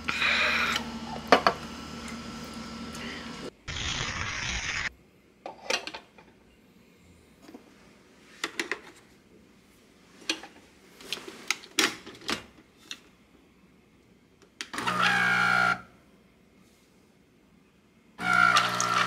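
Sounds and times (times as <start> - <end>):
coffee machine pump buzzing: 14.8 - 15.8, 18.2 - 19.0.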